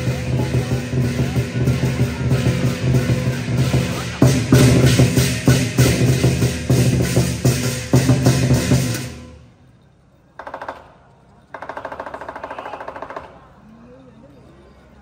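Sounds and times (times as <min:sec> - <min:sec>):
fast drum roll: 0:00.0 - 0:09.3
drum and cymbals beating: 0:00.0 - 0:09.5.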